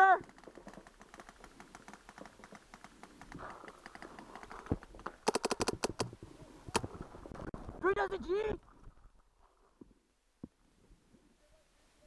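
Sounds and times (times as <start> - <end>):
paintball markers firing: 5.2 - 6.1.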